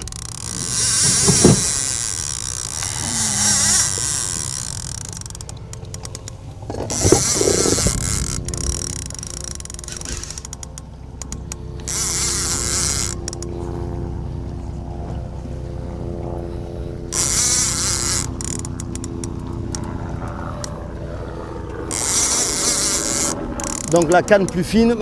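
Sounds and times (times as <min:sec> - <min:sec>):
scattered clicks: 0:00.0 - 0:13.5, 0:21.6 - 0:25.0
boat engine humming: 0:00.0 - 0:25.0.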